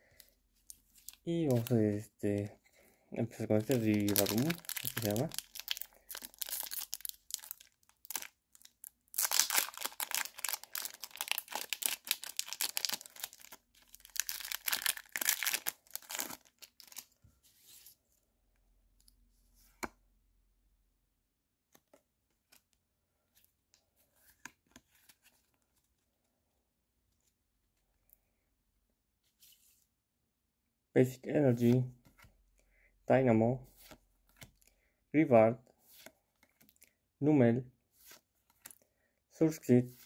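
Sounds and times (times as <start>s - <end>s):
foil pack crinkling and tearing: 3.7s - 17.1s.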